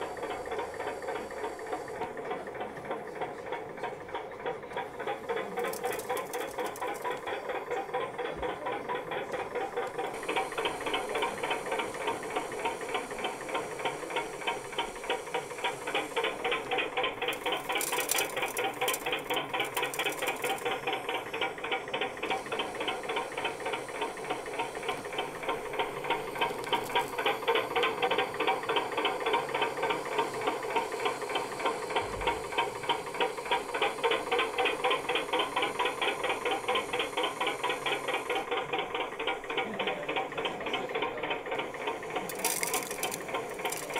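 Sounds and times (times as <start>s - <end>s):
model excavator motor and winch: 0.0s - 43.9s
rapid even clicking: 4.8s - 7.8s, 9.6s - 29.2s, 39.0s - 43.9s.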